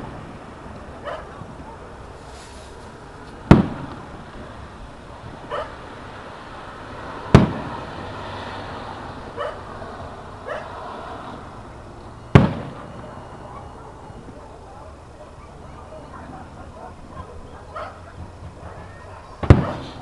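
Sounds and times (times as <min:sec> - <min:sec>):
short faint sounds: 0:02.2 - 0:02.9
firework shells bursting: 0:02.2 - 0:04.1, 0:07.3 - 0:07.7, 0:12.3 - 0:13.0.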